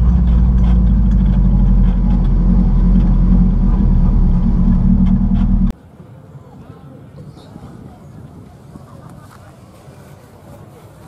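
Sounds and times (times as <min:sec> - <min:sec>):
car engine drone from inside: 0:00.0 - 0:05.7
road noise: 0:00.0 - 0:06.5.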